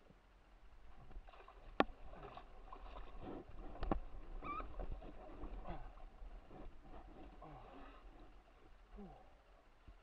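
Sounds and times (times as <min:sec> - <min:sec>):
wind rumble on microphone: 0:00.8 - 0:08.8
water lapping against boat hull: 0:00.8 - 0:10.0.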